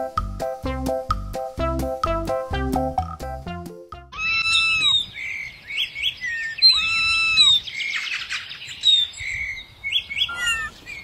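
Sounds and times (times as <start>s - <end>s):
songbirds chirping and whistling: 4.2s - 11.0s.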